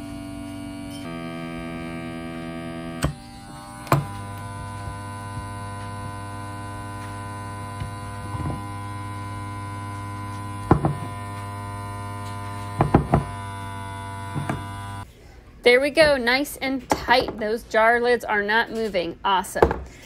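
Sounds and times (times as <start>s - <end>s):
vacuum sealer pump hum: 0.0s - 15.1s.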